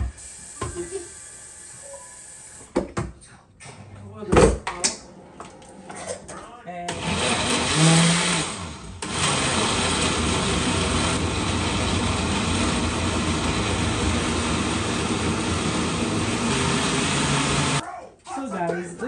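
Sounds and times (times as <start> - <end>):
blender running: 0.0 - 2.7, 6.9 - 17.8.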